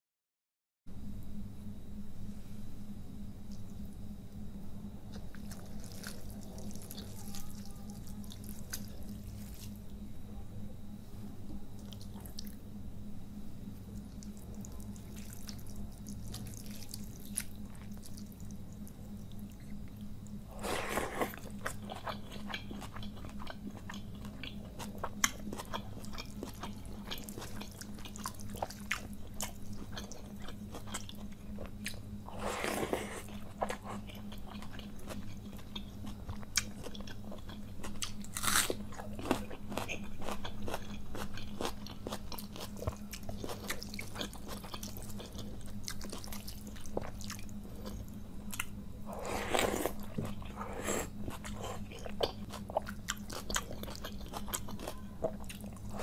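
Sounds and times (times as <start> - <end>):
steady low hum: 0.9 - 56.0
chewing: 5.1 - 9.8, 11.8 - 12.6, 13.9 - 56.0
crunchy bites: 20.5 - 56.0.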